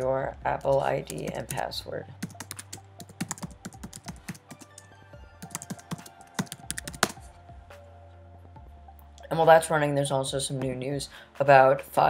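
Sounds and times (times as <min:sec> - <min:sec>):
background music: 0:00.0 - 0:12.0
keyboard typing: 0:01.0 - 0:01.6, 0:02.2 - 0:07.2.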